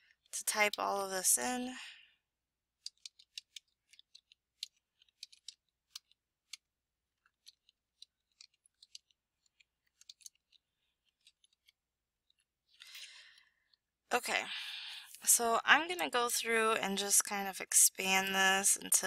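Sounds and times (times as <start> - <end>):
faint keyboard typing: 2.8 - 13.5.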